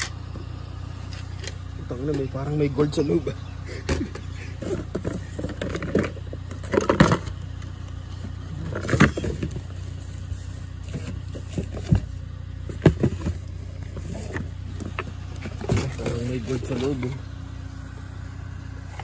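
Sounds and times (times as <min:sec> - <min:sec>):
steady low hum: 0:00.0 - 0:19.0
cardboard boxes knocking and rustling: 0:08.6 - 0:09.8, 0:10.8 - 0:16.3.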